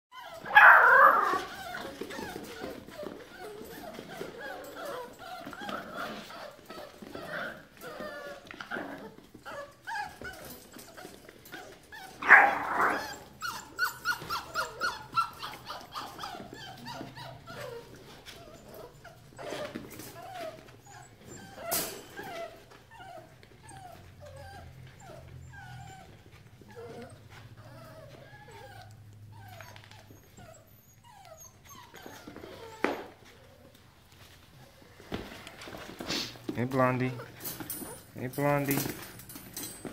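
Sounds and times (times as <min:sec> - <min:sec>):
puppy yips: 0:00.1 - 0:08.3, 0:09.5 - 0:26.1, 0:26.7 - 0:33.2
puppies crying and whining: 0:00.1 - 0:39.9.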